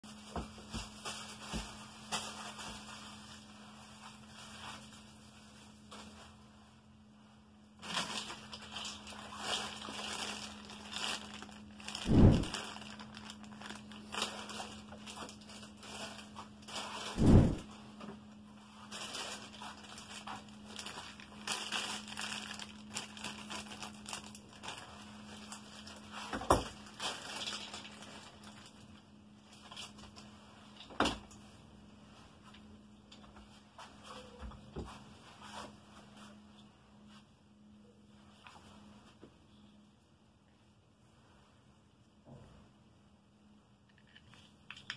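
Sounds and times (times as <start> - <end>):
plastic packaging crinkling: 0.1 - 6.3, 7.7 - 17.8, 18.7 - 30.9, 43.9 - 44.9
faint low hum: 0.1 - 44.9.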